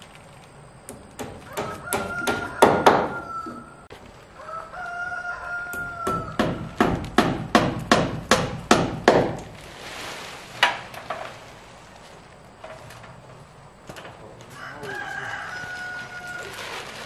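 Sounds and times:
hammer strikes on wood: 0.9 - 3.2, 5.7 - 9.5
rooster crowing: 1.4 - 6.8, 14.5 - 16.9.

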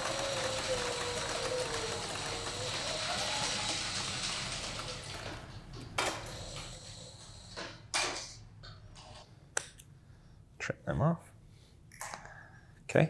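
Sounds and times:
sewing machine running: 0.0 - 7.5.

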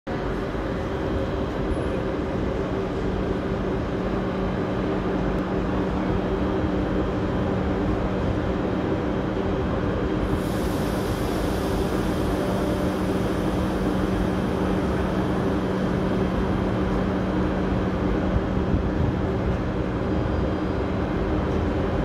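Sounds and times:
train equipment humming: 0.1 - 22.0
high hiss: 10.2 - 16.3.

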